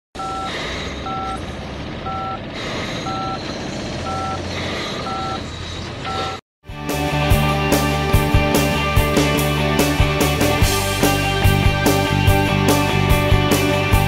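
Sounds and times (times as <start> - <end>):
short two-tone beeps: 0.2 - 0.5, 1.1 - 1.4, 3.1 - 3.4, 5.1 - 5.4.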